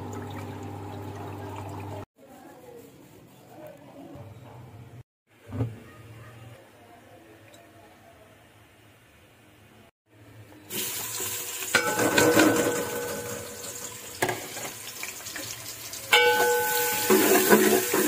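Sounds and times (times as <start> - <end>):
onions sizzling in hot oil: 10.7 - 18.0
pot ringing: 11.7 - 14.1, 16.1 - 18.0
metal spoon clanking on pot: 11.7 - 14.8, 16.1 - 18.0.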